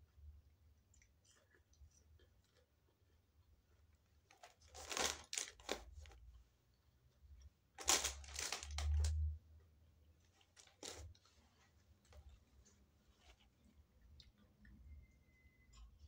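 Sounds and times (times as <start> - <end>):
paper bag crinkling and tearing: 4.3 - 6.2, 7.8 - 9.2, 10.5 - 11.2.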